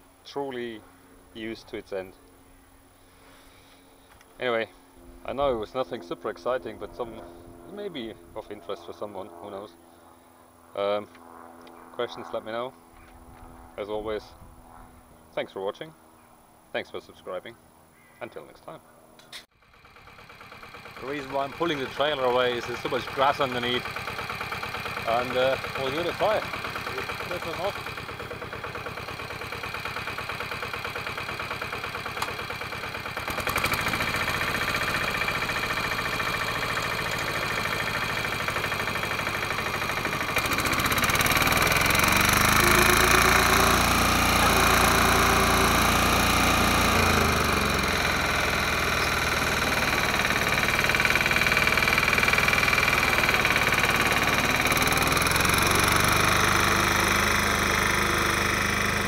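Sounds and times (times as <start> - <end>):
diesel mower engine revving: 4.4 - 8.7, 19.6 - 59.0.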